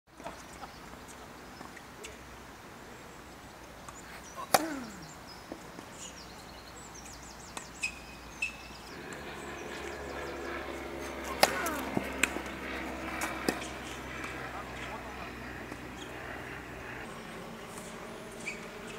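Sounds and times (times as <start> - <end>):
birds chirping: 0.1 - 18.9
tennis ball bounces: 4.4 - 5.6, 11.2 - 12.5, 13.1 - 14.9
tennis balls struck by rackets: 4.4 - 5.6, 11.0 - 14.9
steady hum: 6.0 - 18.9.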